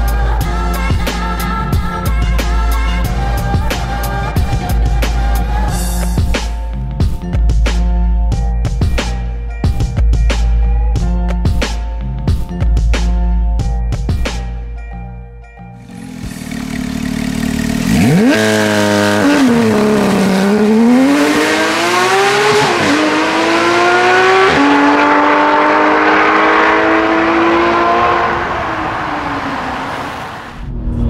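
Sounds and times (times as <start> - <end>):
car engine revving: 15.8 - 30.7.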